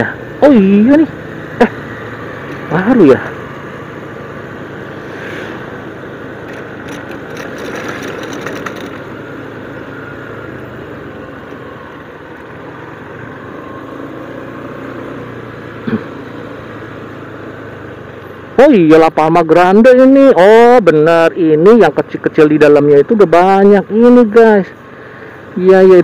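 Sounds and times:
motorcycle engine cruising: 0.0s - 20.7s
wind and road noise: 0.0s - 26.0s
light clicks or rattles: 6.4s - 9.1s.

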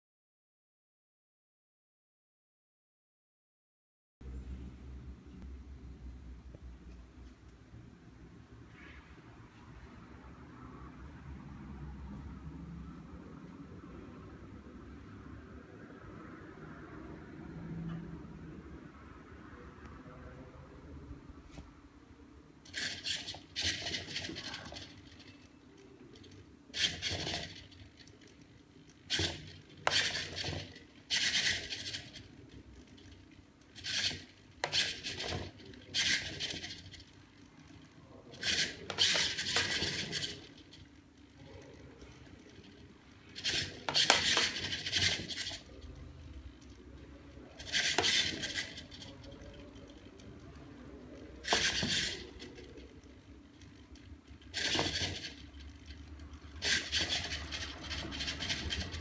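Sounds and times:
steel ball rolling on glass: 22.7s - 59.0s.

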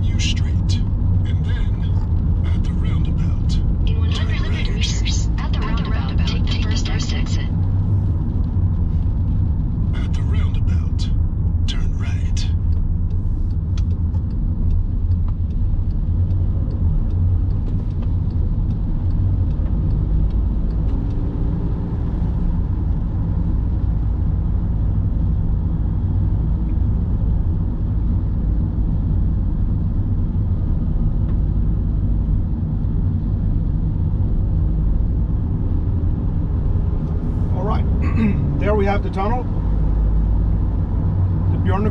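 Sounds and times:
car driving on wet road: 7.6s - 11.6s, 12.6s - 32.3s
faint light ticks: 12.6s - 21.4s.

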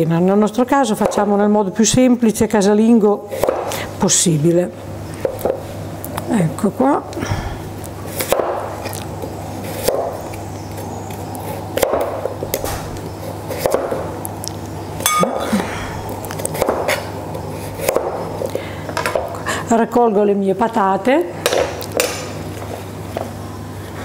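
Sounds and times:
knife cutting potatoes on board: 3.3s - 3.7s, 9.6s - 10.2s, 11.1s - 12.8s, 13.5s - 14.0s, 16.4s - 18.3s.

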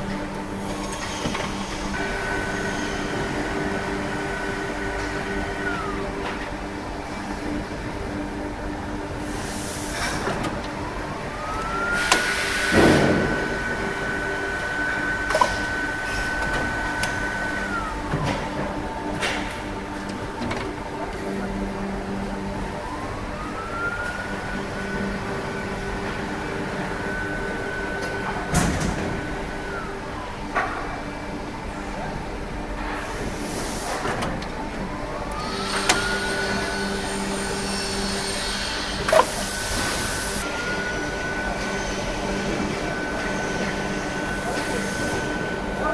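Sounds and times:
injection moulding machine whine: 0.0s - 45.9s
loud machine clunk: 12.0s - 13.6s.

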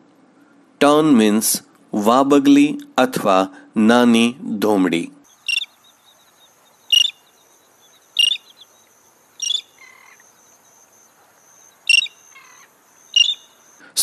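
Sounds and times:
faint high-pitched buzz: 5.2s - 14.0s
terns calling: 5.2s - 14.0s.

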